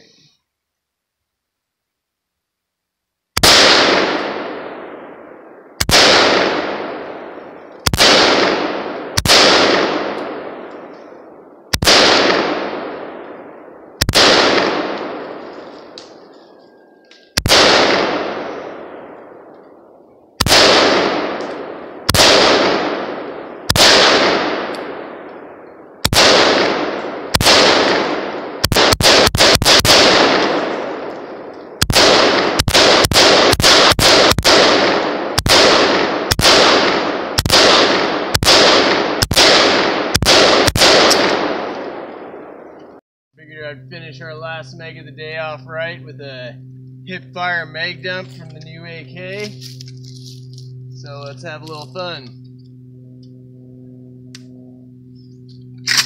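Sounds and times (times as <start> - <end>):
rapid rifle fire: 3.4 - 19.8, 20.4 - 42.9
rifle shots echoing: 3.4 - 43.0, 44.4 - 56.0.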